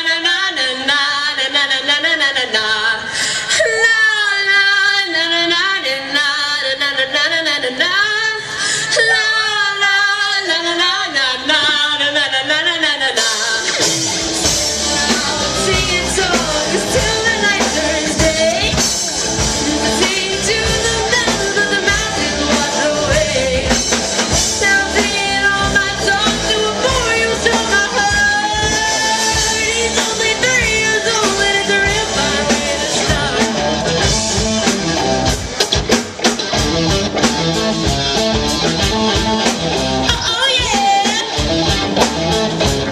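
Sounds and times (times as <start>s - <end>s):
woman singing: 0.0s - 34.4s, 40.0s - 41.5s
rock band playing: 13.1s - 42.9s.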